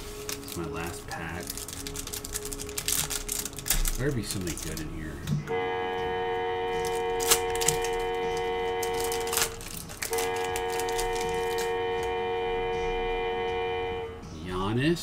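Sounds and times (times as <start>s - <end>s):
foil wrapper tearing: 0.0s - 5.0s, 6.8s - 12.1s
steady held musical tone: 0.0s - 15.0s.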